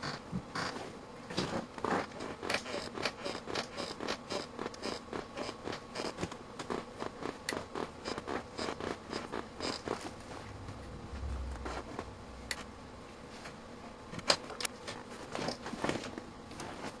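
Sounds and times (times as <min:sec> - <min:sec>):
high-voltage pulse clicks: 0:10.5 - 0:12.9.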